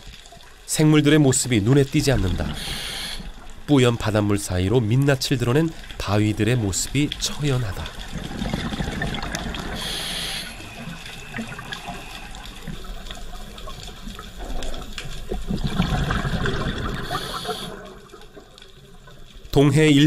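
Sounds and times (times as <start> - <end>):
regulator hiss: 2.4 - 3.6, 9.7 - 13.6, 17.0 - 18.0
diver exhaling bubbles underwater: 7.8 - 18.2.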